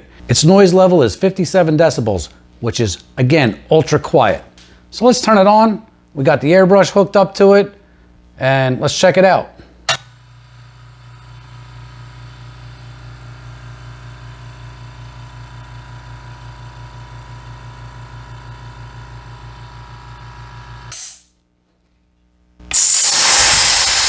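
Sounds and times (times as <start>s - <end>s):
air compressor humming: 9.8s - 21.3s, 22.7s - 24.0s
loud hiss of rushing air: 22.7s - 24.0s.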